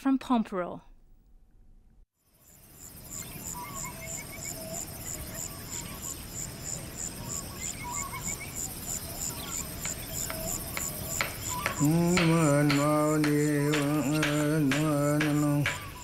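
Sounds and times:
high-pitched insect pulse: 2.3s - 16.0s
bird chirps and calls: 3.1s - 16.0s
sharp clicks: 11.7s - 16.0s.

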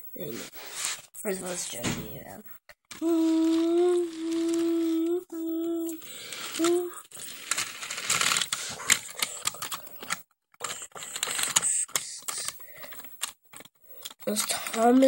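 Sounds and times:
toy train clicking and rattling: 2.9s - 15.0s
person humming: 3.0s - 7.1s.

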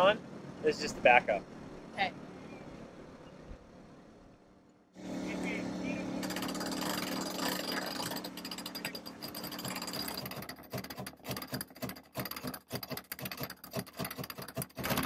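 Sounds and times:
winch pawls clicking: 6.2s - 15.0s.

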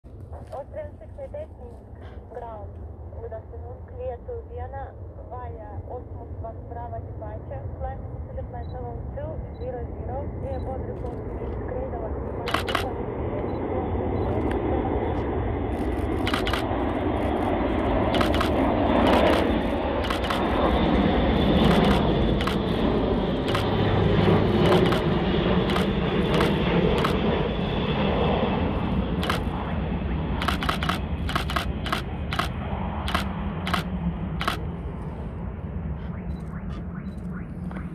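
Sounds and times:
propeller aircraft drone: 0.0s - 37.9s
sharp clicks: 12.5s - 13.0s, 15.8s - 20.6s, 21.6s - 22.8s, 23.4s - 23.8s, 24.6s - 27.2s, 29.2s - 29.6s, 30.4s - 34.6s.

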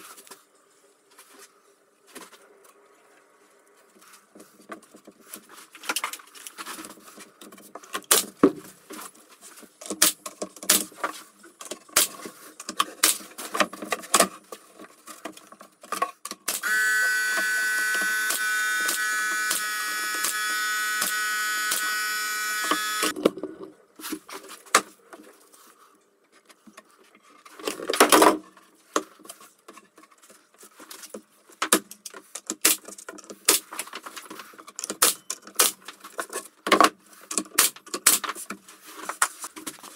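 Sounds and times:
machine with high whine: 16.5s - 23.1s
pneumatic nailer firing: 16.5s - 23.1s.

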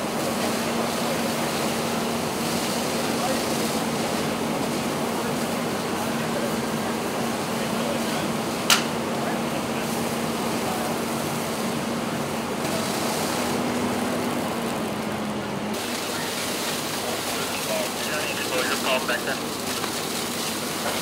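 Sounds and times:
fire burning with rushing noise: 0.0s - 21.0s
sharp crack of fire: 12.4s - 21.0s.

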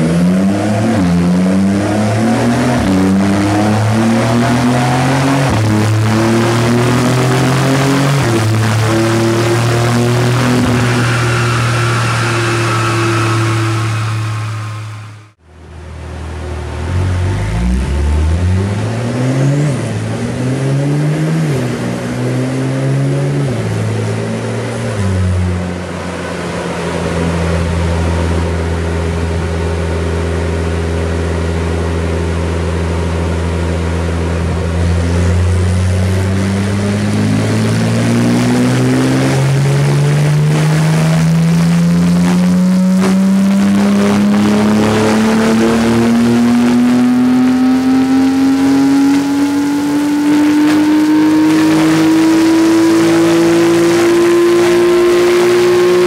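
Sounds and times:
car engine revving on dyno: 0.0s - 15.4s, 16.6s - 56.0s.

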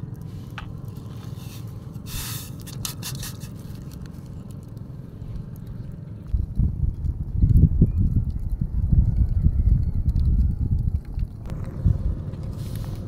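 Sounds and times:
low steady rumble: 0.0s - 13.0s
twig fire crackling: 0.0s - 13.0s
short hiss: 2.0s - 2.6s.

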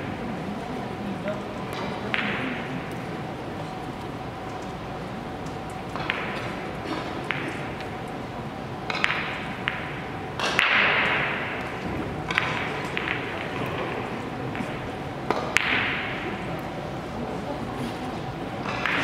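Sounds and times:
billiard balls clicking: 5.4s - 8.2s, 8.8s - 16.2s.

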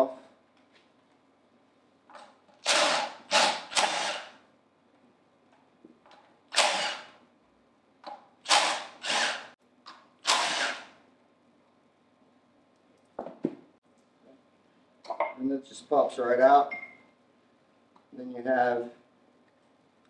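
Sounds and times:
cordless impact driver bursts: 2.6s - 4.4s, 6.5s - 7.2s, 8.4s - 9.5s, 10.2s - 11.0s.

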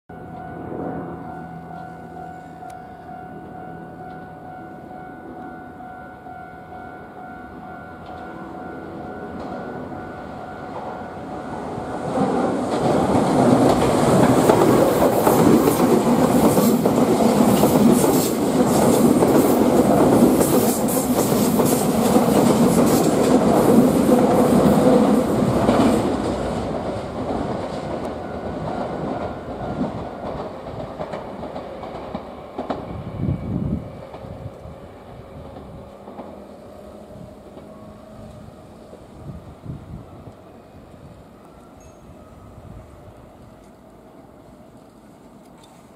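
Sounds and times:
electric train passing: 0.1s - 45.9s
wheels clacking over rail joints: 11.8s - 33.0s.

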